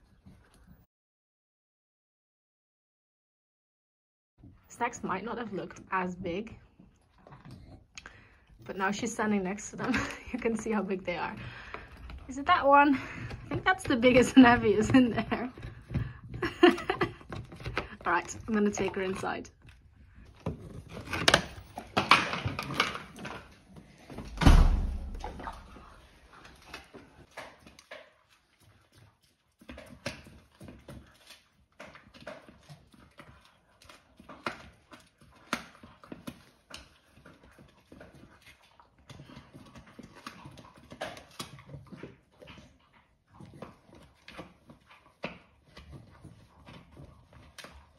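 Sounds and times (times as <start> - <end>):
heavy thump: 24.3 - 25.4
dog gnawing hard chew: 25.2 - 47.9.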